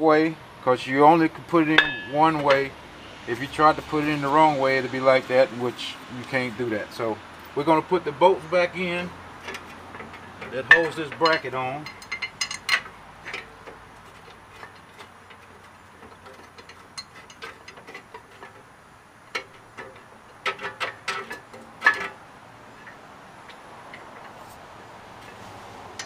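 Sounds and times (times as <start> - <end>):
metal bolt clicks and clinks: 9.4 - 18.6.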